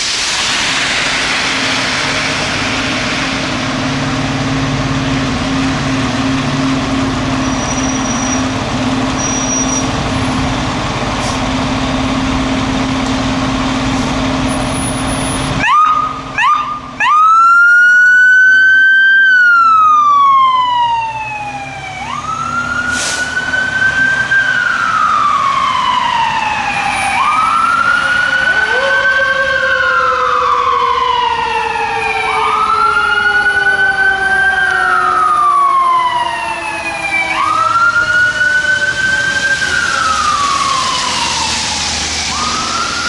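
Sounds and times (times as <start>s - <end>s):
fire engine siren wailing: 0.2s - 43.0s
lower siren tone sliding down: 15.6s - 43.0s.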